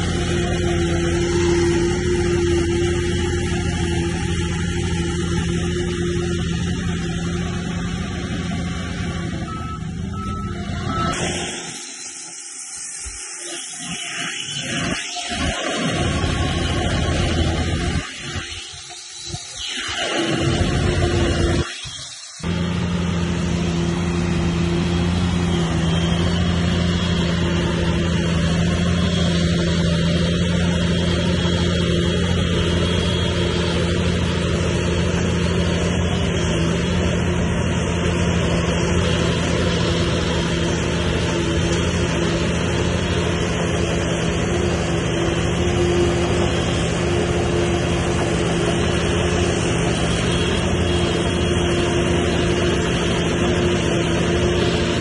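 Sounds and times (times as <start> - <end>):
diesel engine droning: 0.0 - 55.0.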